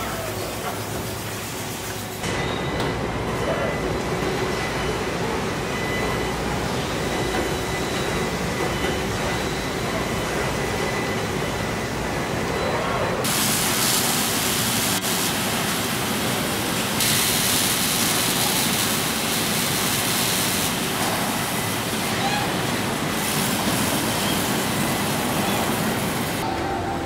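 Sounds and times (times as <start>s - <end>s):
welding line machinery noise: 0.0s - 26.5s
loud steady hiss: 13.2s - 26.4s.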